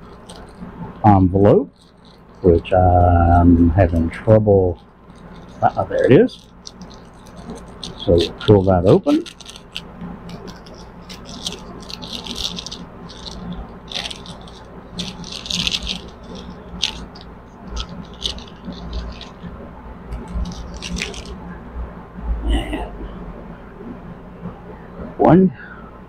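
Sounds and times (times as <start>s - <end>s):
paper envelope crinkling and rustling: 0.0s - 0.7s, 1.7s - 3.1s, 4.8s - 19.5s, 20.1s - 21.4s
small clicks and rattles: 0.0s - 1.1s, 1.7s - 3.2s, 4.8s - 19.5s, 20.1s - 21.4s
low steady hum: 0.0s - 26.0s.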